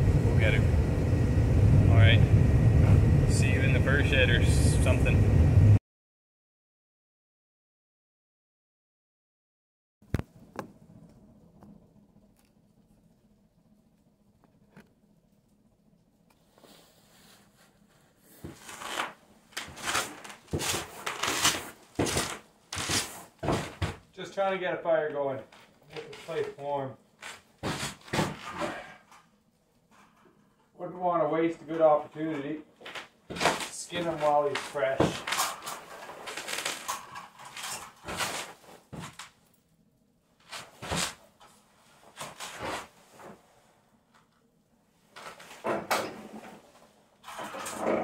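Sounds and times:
rustling and clattering of gear: 16.4s - 24.1s, 25.5s - 30.8s, 32.2s - 39.5s, 40.3s - 44.4s, 45.0s - 48.0s
boots scuffing on gritty floor: 19.6s - 24.0s.

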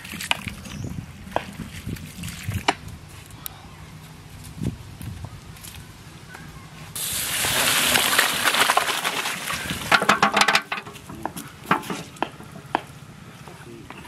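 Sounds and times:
water pouring and splashing: 0.0s - 3.1s, 7.0s - 11.0s.

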